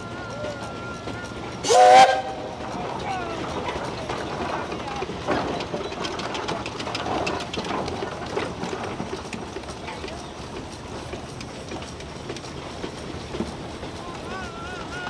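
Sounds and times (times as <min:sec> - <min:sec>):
steam engine exhaust chuffing: 0:00.0 - 0:15.0.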